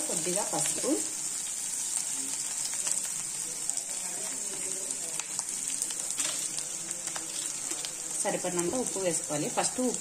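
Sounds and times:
vegetables sizzling in hot oil: 0:00.0 - 0:10.0.

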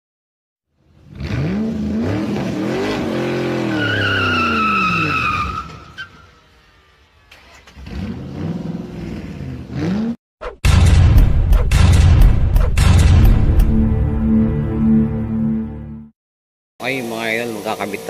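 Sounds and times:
sports car engine revving: 0:01.0 - 0:03.8, 0:06.6 - 0:10.2
tire squeal: 0:02.3 - 0:09.6.

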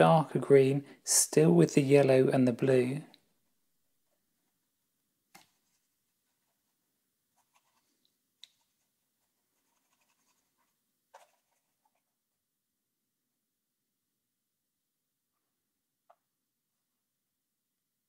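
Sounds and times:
paintbrush dabbing on canvas: 0:05.4 - 0:12.1.

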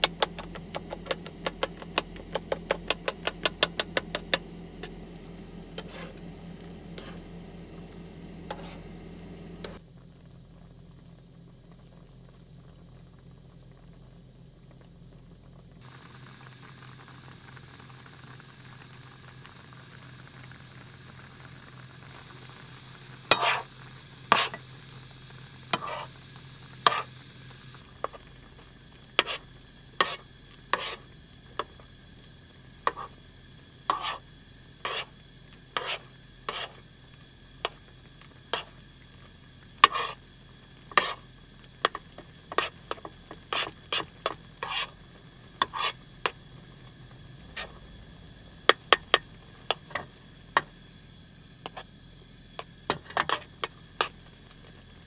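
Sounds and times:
food sizzling faintly: 0:00.0 - 0:09.8, 0:15.8 - 0:55.0
low steady hum: 0:00.0 - 0:55.0
utensil scraping frying pan: 0:05.8 - 0:07.3, 0:08.4 - 0:08.9, 0:23.3 - 0:23.7, 0:24.3 - 0:24.6, 0:25.7 - 0:26.1, 0:26.8 - 0:27.1, 0:29.1 - 0:31.7, 0:32.8 - 0:33.2, 0:33.9 - 0:34.2, 0:34.8 - 0:35.1, 0:35.7 - 0:36.8, 0:38.5 - 0:38.8, 0:39.8 - 0:40.2, 0:40.9 - 0:41.2, 0:41.8 - 0:46.4, 0:52.9 - 0:54.2.

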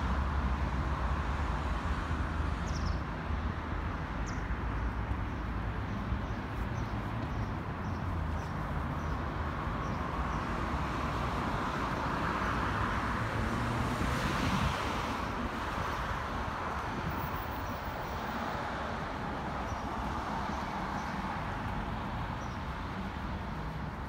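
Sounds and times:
road traffic hum: 0:00.0 - 0:24.0
car passing: 0:09.6 - 0:24.0.

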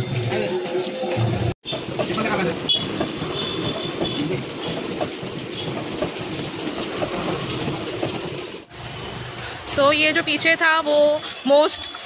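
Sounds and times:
hot oil sizzling: 0:01.6 - 0:10.5.

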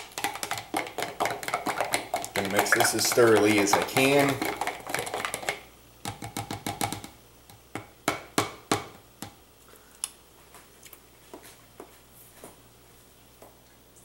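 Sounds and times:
teaspoon clicking on plastic tub: 0:00.2 - 0:07.2.

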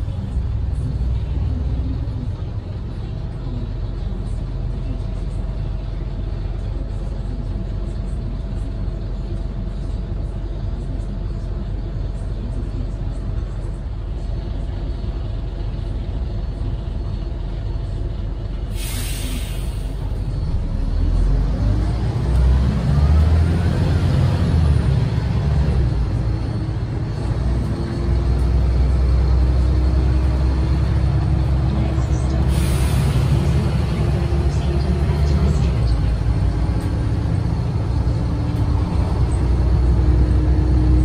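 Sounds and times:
bus diesel engine: 0:00.0 - 0:41.0
air brake hiss: 0:18.7 - 0:20.0.

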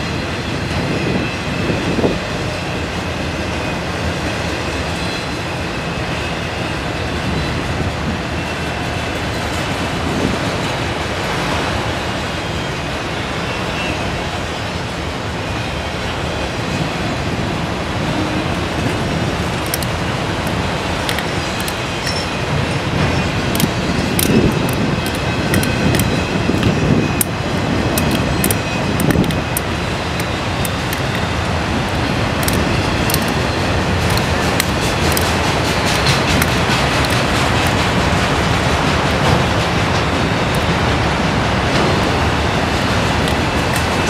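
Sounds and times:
freight train rumbling on rails: 0:00.0 - 0:44.0
sharp clicks: 0:23.5 - 0:31.3, 0:31.9 - 0:33.4, 0:34.0 - 0:38.0.

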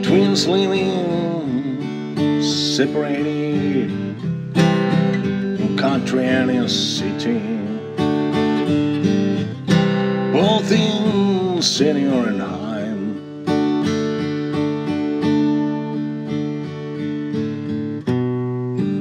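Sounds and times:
person singing: 0:00.0 - 0:04.2, 0:05.1 - 0:08.2, 0:10.3 - 0:13.3
strummed acoustic guitar: 0:00.0 - 0:19.0.

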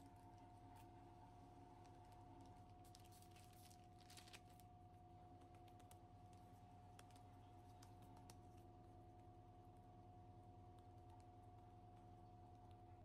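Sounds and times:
faint hum: 0:00.0 - 0:13.0
plastic sheet crinkling: 0:02.7 - 0:04.6.

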